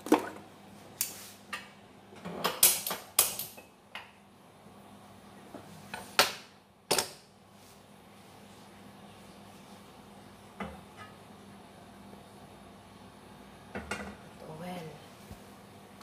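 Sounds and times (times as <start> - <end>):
kitchenware knocking and clattering: 13.7 - 14.2.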